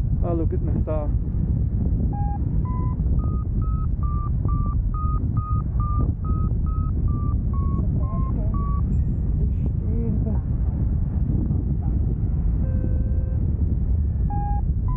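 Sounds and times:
wind rumble on microphone: 0.0 - 14.9
variometer beeping pips: 2.1 - 9.4, 12.6 - 13.4, 14.3 - 14.9.

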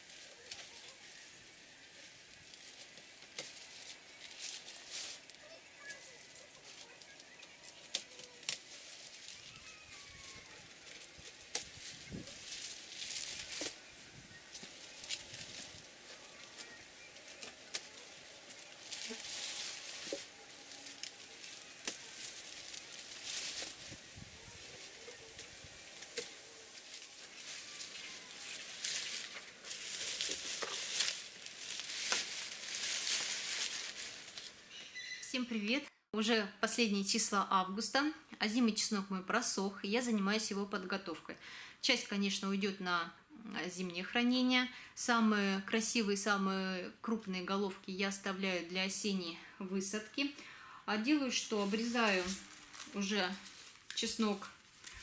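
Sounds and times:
dry stalks rustling: 0.0 - 35.4, 49.0 - 55.0.

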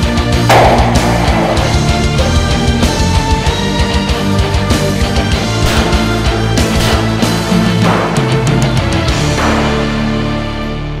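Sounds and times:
cymbal crash: 0.5 - 3.9
held music chord: 0.5 - 11.0.

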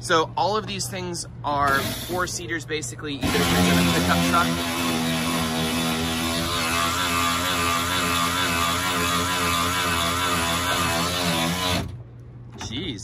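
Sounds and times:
motor-driven machine drone: 1.7 - 2.4, 3.2 - 12.0.

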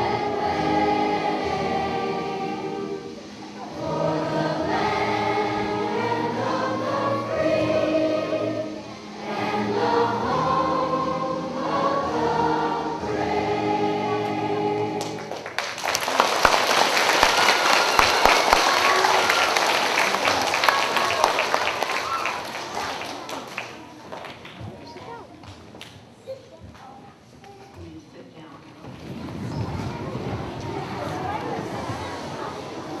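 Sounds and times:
children's choir singing: 0.0 - 24.0, 28.9 - 33.0
applause: 15.0 - 24.9.

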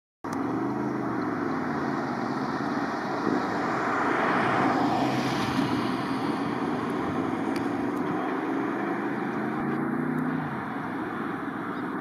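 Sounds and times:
trains passing: 0.5 - 11.8.

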